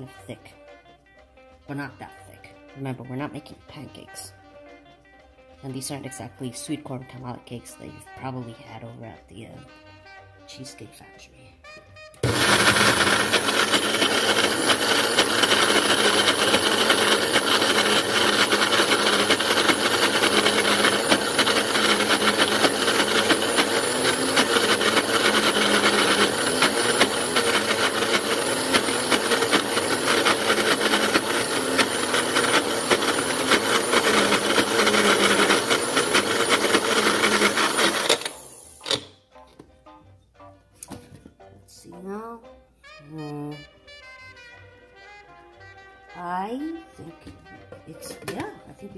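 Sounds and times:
blender motor running: 12.2 - 39.2.

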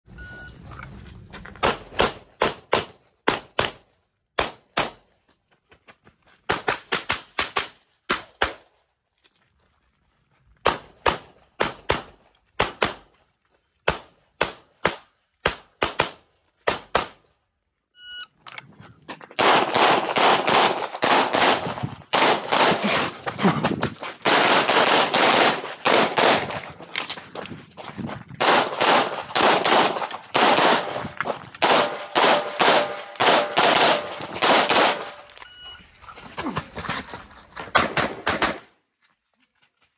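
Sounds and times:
pistol shots: 19.4 - 23.1, 24.2 - 26.7, 28.4 - 35.3
shot timer beep: 35.4 - 35.8.

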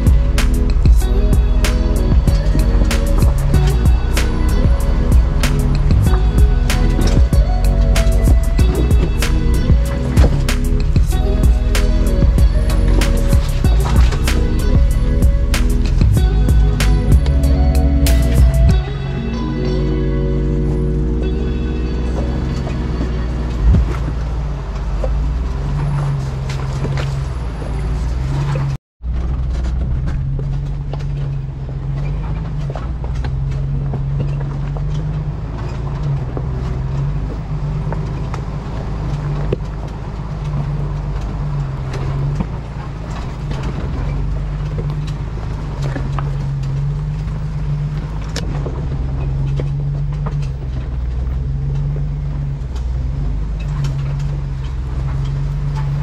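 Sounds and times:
engine running low: 0.0 - 56.0.

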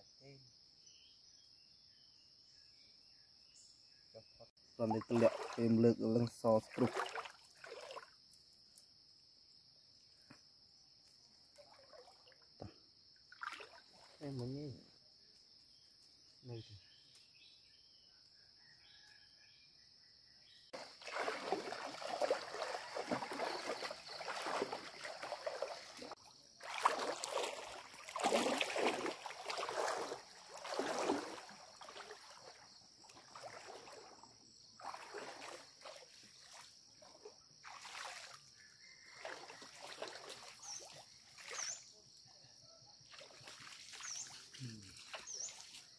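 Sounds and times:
water sloshing and splashing: 4.8 - 8.2, 11.5 - 12.7, 13.3 - 14.4, 20.8 - 41.8, 43.1 - 45.9.

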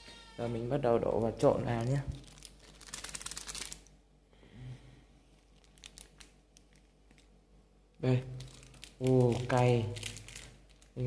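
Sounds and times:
plastic sachet crinkling and tearing: 1.7 - 4.0, 5.4 - 7.4, 8.2 - 11.0
faint rustles and clicks: 5.3 - 7.4.

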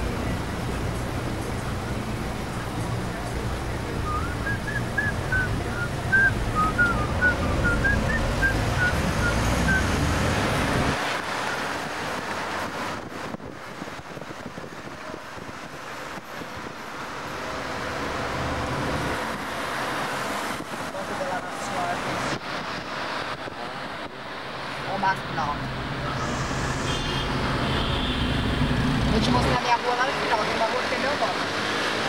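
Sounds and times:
engine rumble: 0.0 - 13.4.

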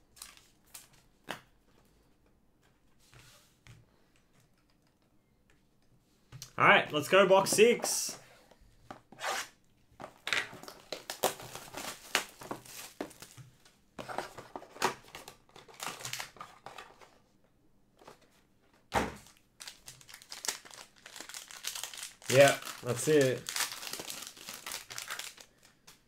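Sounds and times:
plastic wrapping tearing and crinkling: 10.2 - 13.4, 19.2 - 26.0.

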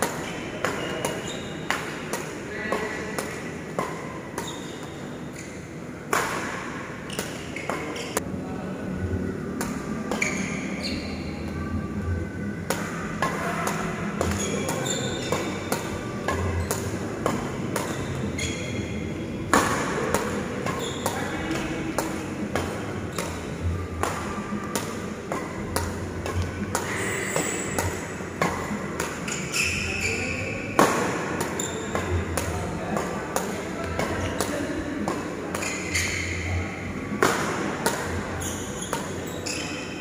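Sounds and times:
rackets striking shuttlecocks: 12.7 - 18.2, 19.4 - 29.8, 30.7 - 36.2, 37.1 - 39.6.

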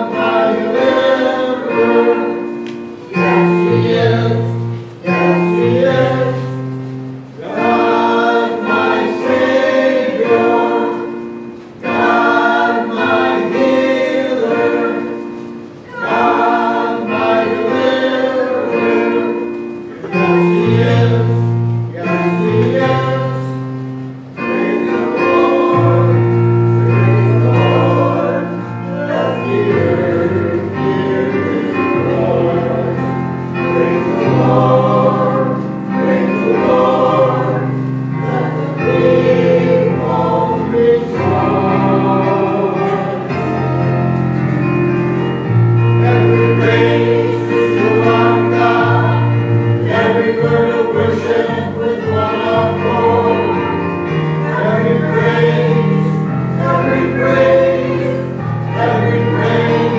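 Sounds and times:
group singing sacred song: 0.0 - 59.9.

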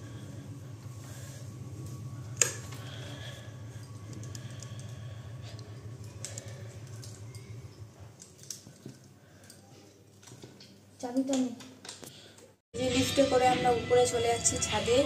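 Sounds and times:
low steady hum: 0.0 - 10.8.

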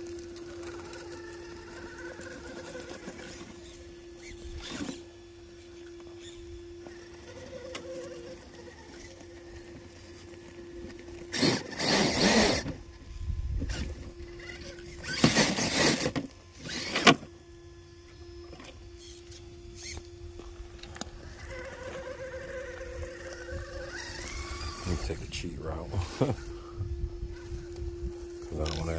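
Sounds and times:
electric motor whining: 0.0 - 28.9
motor rushing bursts: 0.0 - 28.9.

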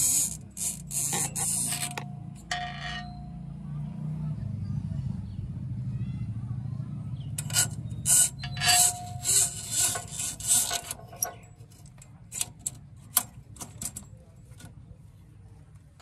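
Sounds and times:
cable scraping against metal: 0.0 - 3.3, 7.4 - 14.8.

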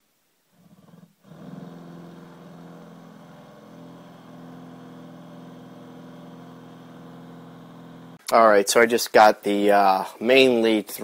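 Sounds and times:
cordless drill boring plywood: 0.6 - 8.2.

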